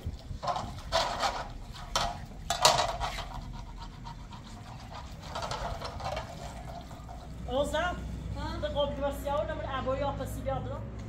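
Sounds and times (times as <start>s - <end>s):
water splashing in pan: 0.0s - 7.5s
rubbing and sloshing: 0.0s - 8.6s.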